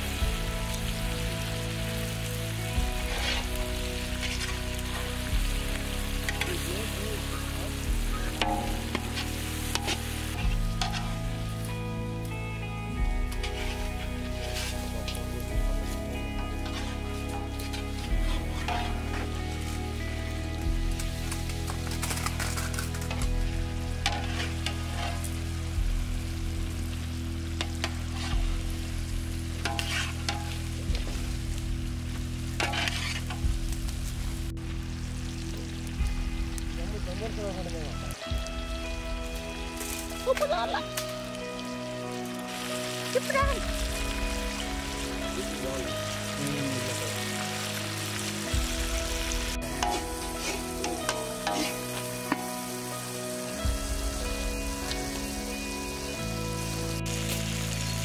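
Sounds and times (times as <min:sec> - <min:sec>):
chicken sizzling in oil: 0:00.0 - 0:58.0
spatula scraping a pan: 0:03.0 - 0:03.6, 0:04.2 - 0:05.1, 0:08.4 - 0:11.2, 0:13.4 - 0:15.1, 0:16.6 - 0:17.0, 0:17.6 - 0:19.3, 0:24.0 - 0:25.4, 0:27.6 - 0:28.7, 0:29.6 - 0:30.6, 0:32.6 - 0:33.4, 0:49.7 - 0:52.5.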